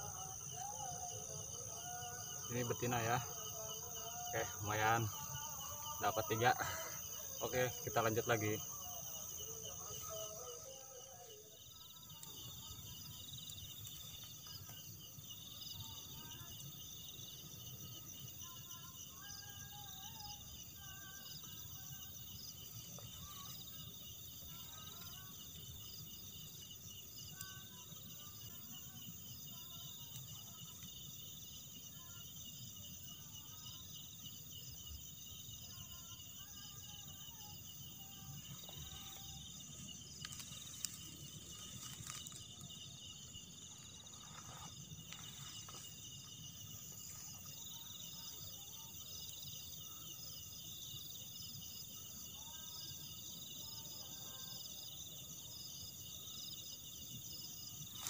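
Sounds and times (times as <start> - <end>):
crickets and insects trilling: 0.0 - 58.0
grass rustling: 38.4 - 46.2, 57.8 - 58.0.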